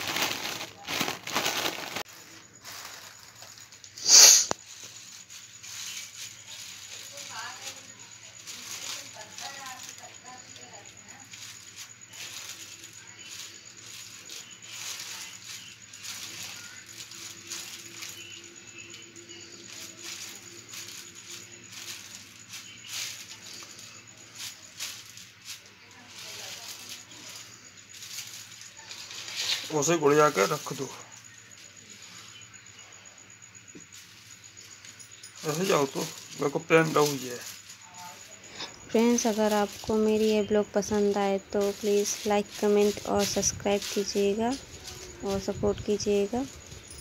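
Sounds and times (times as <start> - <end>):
foil balloons crinkling: 0.0 - 32.4, 33.8 - 47.0.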